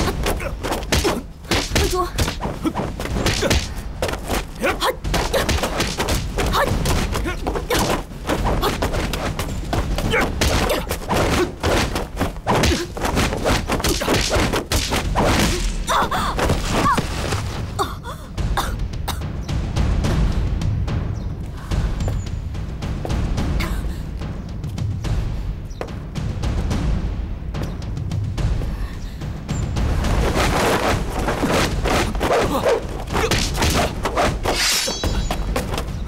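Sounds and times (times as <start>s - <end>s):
punches kicks and body thuds: 0.0s - 17.7s, 30.0s - 36.0s.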